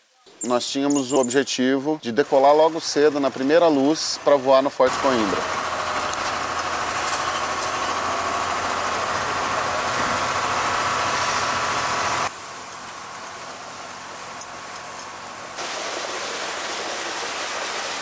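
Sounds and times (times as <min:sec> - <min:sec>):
truck engine running: 0:02.2 - 0:15.6.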